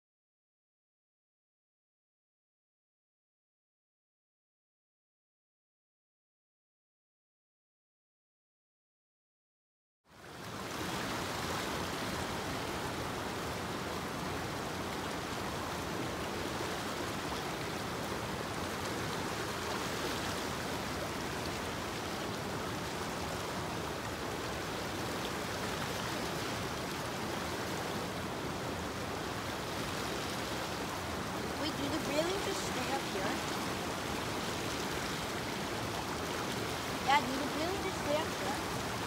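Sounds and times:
stream water rushing: 0:10.1 - 0:39.0.

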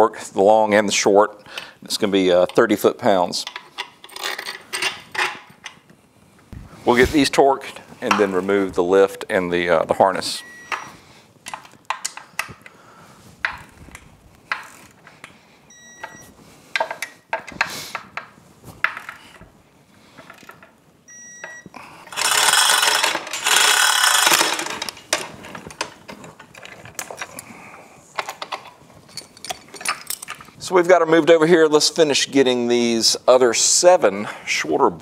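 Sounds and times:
hand ratchet clicking: 0:22.1 - 0:25.0
loud rattling: 0:22.1 - 0:25.3.

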